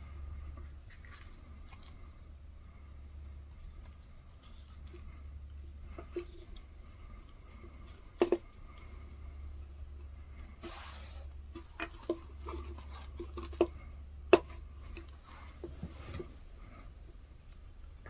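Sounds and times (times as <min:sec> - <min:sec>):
steady low hum: 0:00.0 - 0:18.0
handling rustles: 0:10.4 - 0:13.8.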